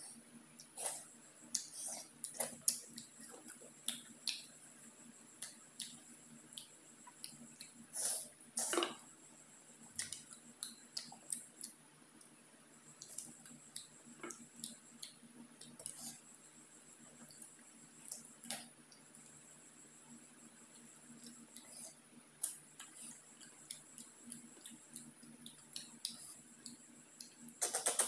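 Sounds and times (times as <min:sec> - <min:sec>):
chewing clicks: 0:10.0 - 0:12.3, 0:20.8 - 0:28.0.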